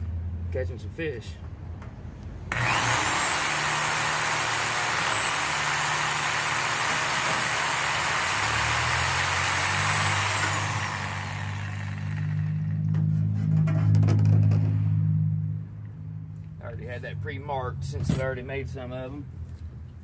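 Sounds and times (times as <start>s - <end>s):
reciprocating saw cutting plastic pipe: 2.5s - 12.8s.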